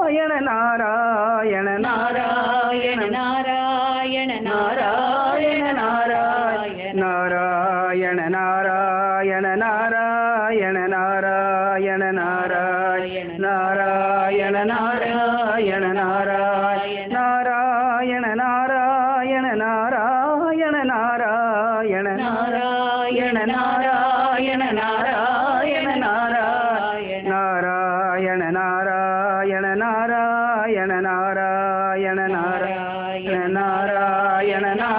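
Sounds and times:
person chanting melodically: 0:00.0 - 0:34.9.

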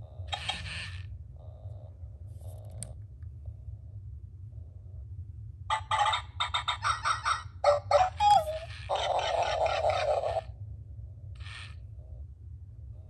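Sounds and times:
toy electronic sound effects: 0:00.3 - 0:01.0, 0:05.7 - 0:10.5, 0:11.4 - 0:11.8.

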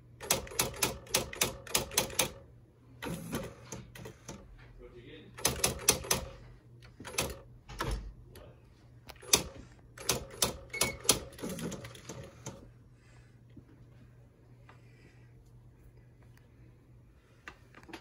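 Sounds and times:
electronic typewriter typing: 0:00.2 - 0:02.4, 0:03.0 - 0:04.4, 0:05.4 - 0:06.4, 0:07.0 - 0:08.0, 0:09.2 - 0:12.6.

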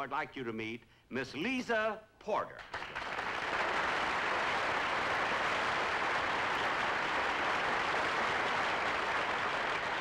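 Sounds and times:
studio audience applauding: 0:02.6 - 0:10.0.

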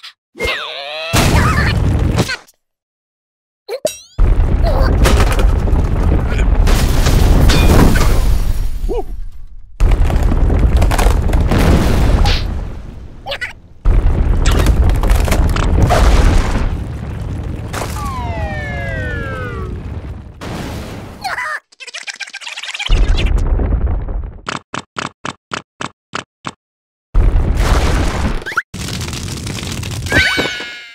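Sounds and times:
cartoon earthquake rumbling: 0:04.2 - 0:21.2, 0:22.8 - 0:24.4, 0:27.2 - 0:30.2.

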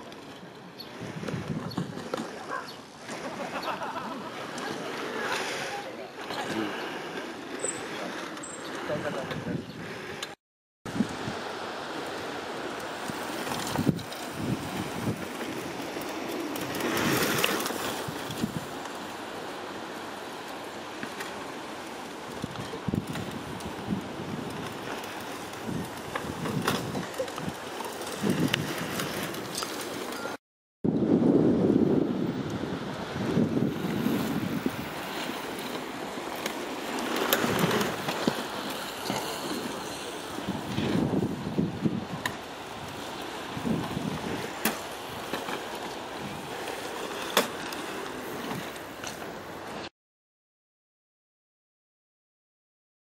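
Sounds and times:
wind on microphone: 0:00.8 - 0:02.7, 0:08.8 - 0:11.6, 0:13.0 - 0:18.8, 0:22.2 - 0:29.6, 0:30.8 - 0:35.8, 0:37.0 - 0:45.4
bike tyres rolling on dirt: 0:10.9 - 0:30.4, 0:31.3 - 0:49.8.

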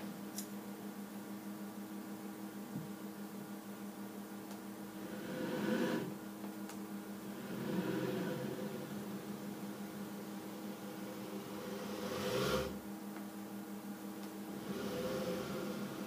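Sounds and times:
robot arm humming and whirring: 0:07.1 - 0:12.8, 0:14.4 - 0:16.0.

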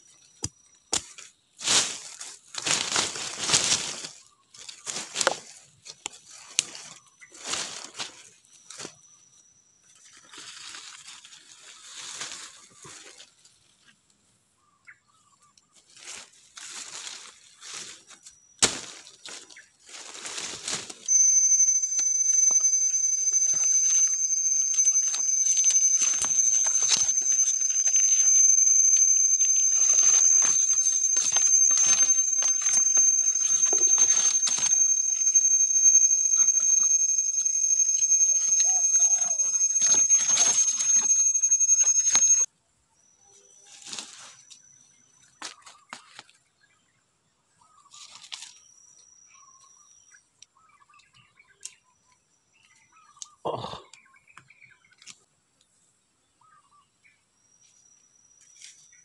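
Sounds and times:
leaves and twigs rustling: 0:01.6 - 0:05.5, 0:10.2 - 0:13.3, 0:18.6 - 0:21.1
cicada whine: 0:21.1 - 0:42.5.

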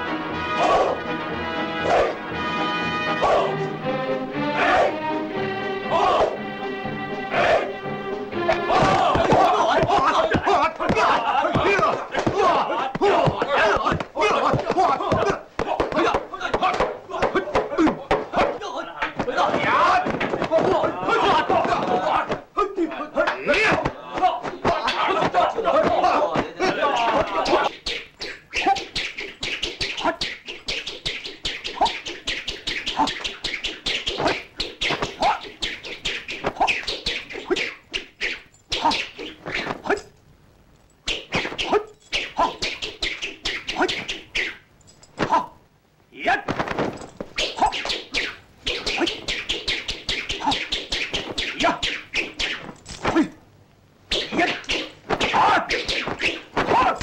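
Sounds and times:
fighter shouting: 0:00.6 - 0:01.0, 0:01.8 - 0:02.2, 0:03.1 - 0:03.6, 0:04.5 - 0:05.0, 0:05.9 - 0:06.4, 0:08.4 - 0:27.7, 0:55.2 - 0:55.7, 0:56.6 - 0:57.0
punch and kick snaps: 0:08.5 - 0:18.6, 0:46.5 - 0:47.0.

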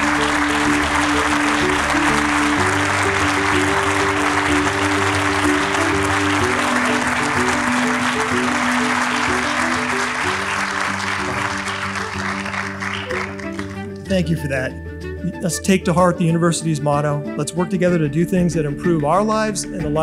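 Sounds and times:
audience applauding: 0:00.0 - 0:14.2
instrumental music: 0:00.0 - 0:20.0.

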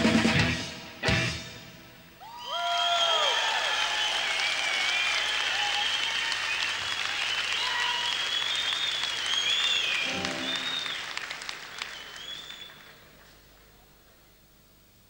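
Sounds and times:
whistles from audience: 0:02.2 - 0:13.3
audience applauding and cheering: 0:02.2 - 0:13.8
brief pitched sound: 0:10.0 - 0:11.1.

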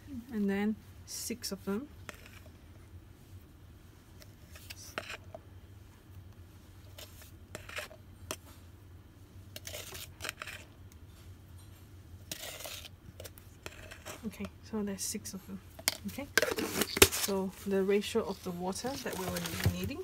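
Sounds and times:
plastic scoop scraping in jar: 0:09.6 - 0:10.7, 0:12.3 - 0:14.3, 0:15.9 - 0:20.0.

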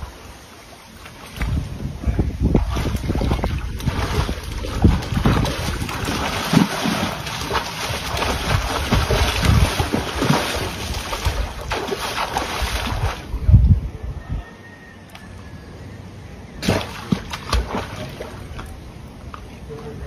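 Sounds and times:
wind on microphone: 0:01.3 - 0:14.6
water splashing: 0:02.4 - 0:13.4, 0:16.6 - 0:19.4.

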